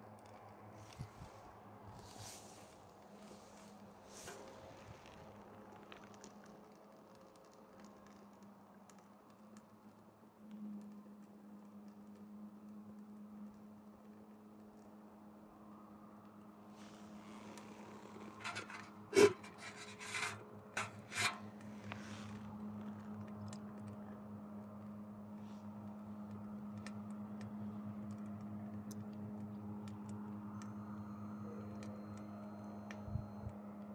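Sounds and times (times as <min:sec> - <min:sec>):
wood fire crackling: 0:02.2 - 0:16.4
low steady hum: 0:09.2 - 0:33.9
sticks burning and crackling: 0:18.1 - 0:24.0.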